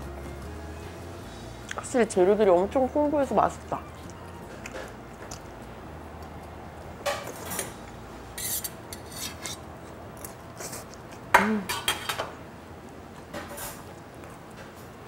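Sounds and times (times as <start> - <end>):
metal fork scraping a steel plate: 8.4 - 9.6.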